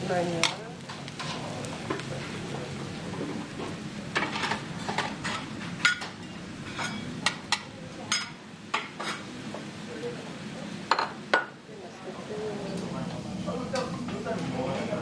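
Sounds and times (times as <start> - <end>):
metal spatulas clinking on a pan: 6.7 - 9.2.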